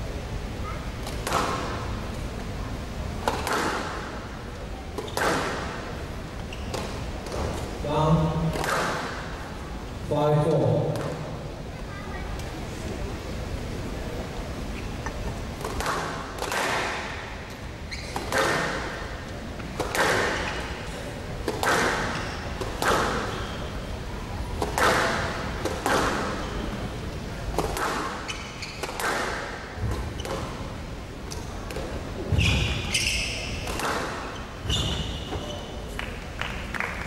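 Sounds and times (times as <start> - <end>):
squash ball hitting rackets and walls: 1.0 - 1.8, 3.2 - 4.2, 4.9 - 5.9, 8.4 - 9.3, 15.6 - 17.3, 18.0 - 20.7, 21.4 - 23.5, 24.6 - 26.7, 27.5 - 30.7, 31.3 - 35.6.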